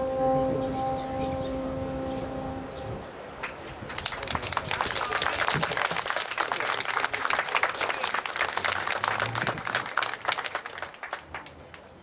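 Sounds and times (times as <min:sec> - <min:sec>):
audience applauding: 0:03.4 - 0:11.9.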